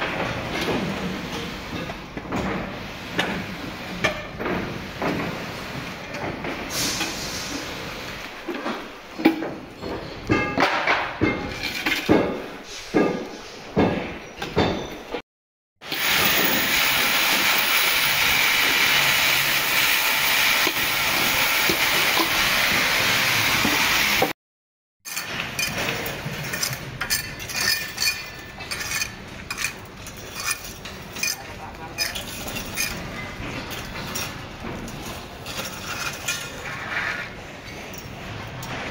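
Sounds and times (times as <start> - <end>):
sharp metallic clinks and knocks: 13.8 - 15.2
steady loud hiss: 15.9 - 24.3.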